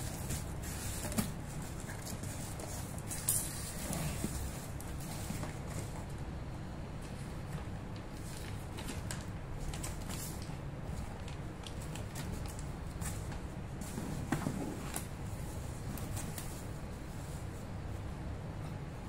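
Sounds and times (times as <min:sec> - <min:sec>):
steady low hum: 0:00.0 - 0:19.0
bubble wrap crinkling: 0:08.0 - 0:13.4.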